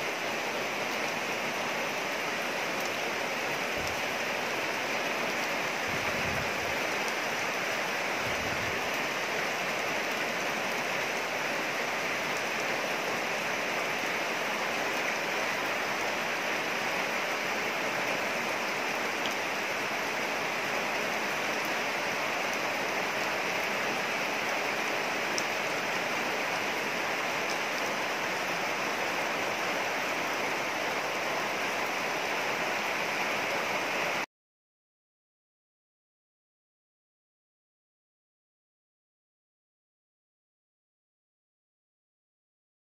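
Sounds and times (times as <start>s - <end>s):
rain falling on trees: 0.0s - 34.3s.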